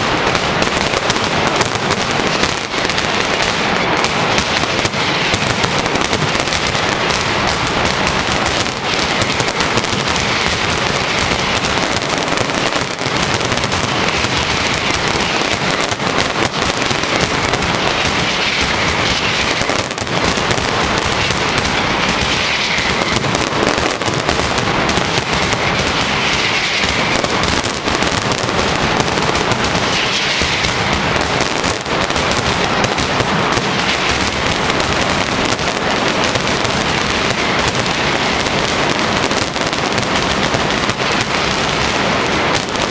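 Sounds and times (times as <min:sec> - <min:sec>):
firecrackers going off rapidly: 0:00.0 - 0:42.9.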